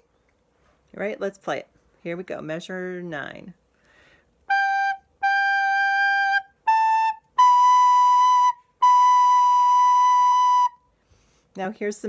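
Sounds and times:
recorder playing slow notes: 4.5 - 10.9.

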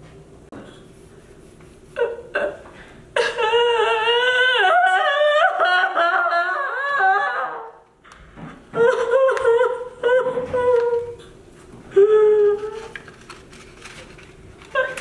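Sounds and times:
person crying out: 3.2 - 7.8
person wailing: 3.2 - 7.8.

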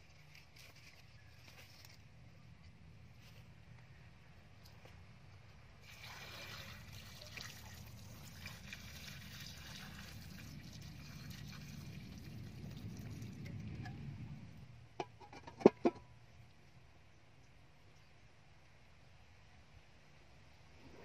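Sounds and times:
liquid pouring into a wok: 5.8 - 13.5.

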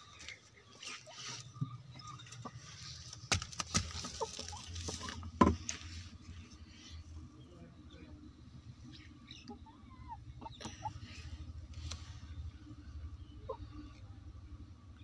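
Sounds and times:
knocks on wooden nest box: 5.4 - 5.8.

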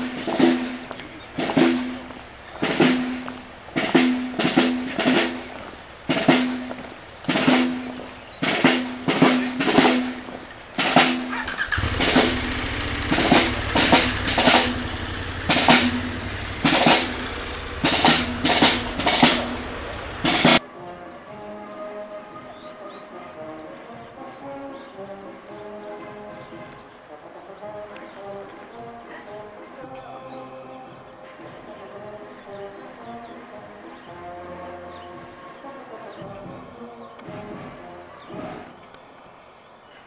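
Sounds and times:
cymbals: 0.0 - 20.6
snare drums: 0.0 - 20.6, 36.1 - 38.8
bass drum: 10.8 - 20.6
low steady rumble: 11.7 - 20.6.

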